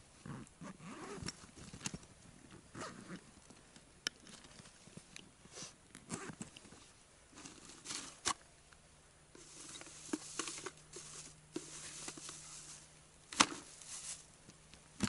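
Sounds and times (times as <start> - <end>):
faint steady hum: 0.0 - 15.0
bag rustling: 9.4 - 14.3.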